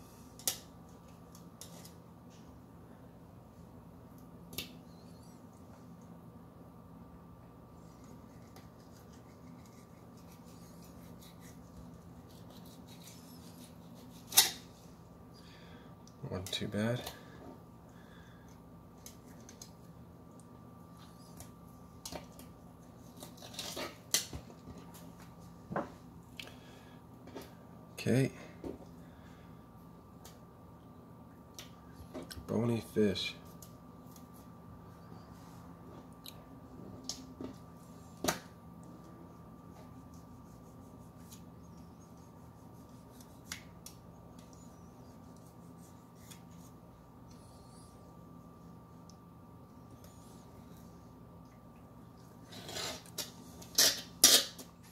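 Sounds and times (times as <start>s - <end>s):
faint steady hum: 0.0s - 54.9s
knife scraping fish: 8.2s - 14.6s.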